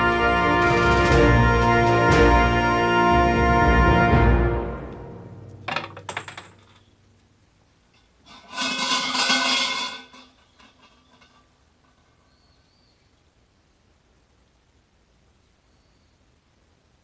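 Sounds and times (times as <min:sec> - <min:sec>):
coins clattering into wooden box: 0:05.6 - 0:06.9.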